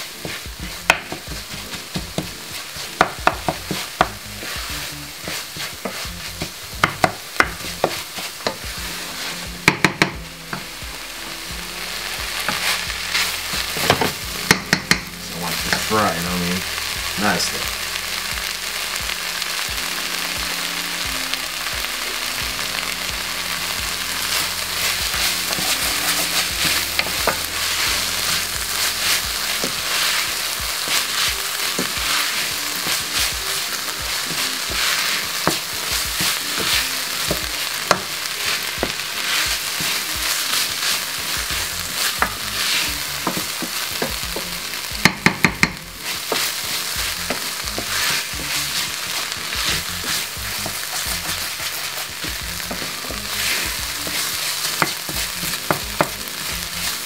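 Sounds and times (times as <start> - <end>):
meat and onions sizzling: 0.0 - 57.0
wooden spoon scraping pan: 46.0 - 57.0.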